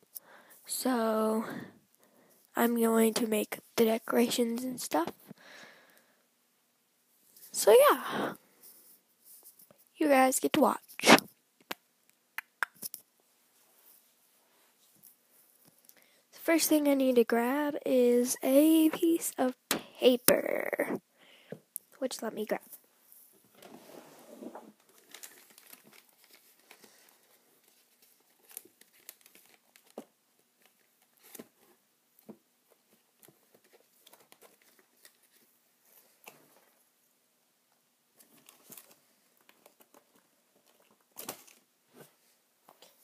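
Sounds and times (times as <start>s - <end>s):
paper rustling: 23.6s - 31.8s, 32.7s - 36.7s.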